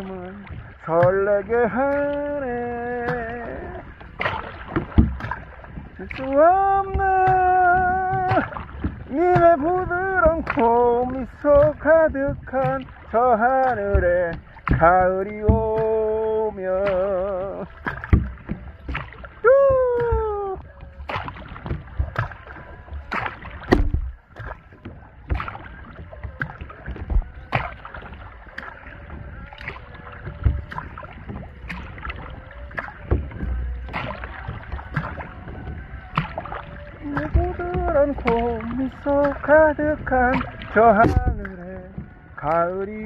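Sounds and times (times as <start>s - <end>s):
paddle splashing strokes: 0.0s - 43.0s
water dripping and sloshing: 0.0s - 43.0s.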